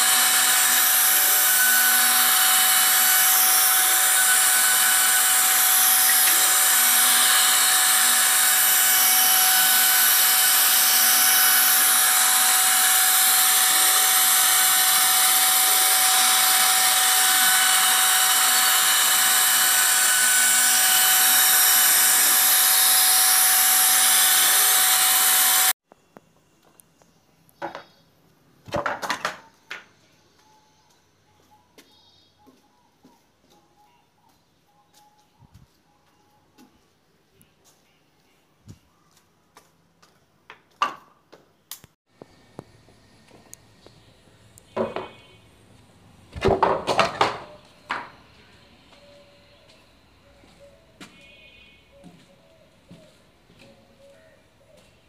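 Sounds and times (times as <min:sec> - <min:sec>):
router spindle whining: 0:00.0 - 0:25.8.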